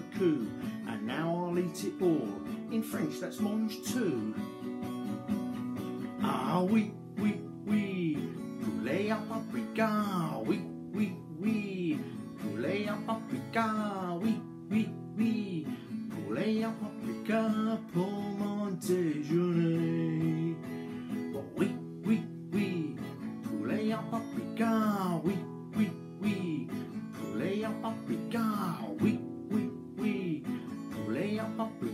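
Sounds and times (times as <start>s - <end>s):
man singing: 0.0s - 4.7s, 6.0s - 31.9s
acoustic guitar strumming: 0.0s - 31.9s.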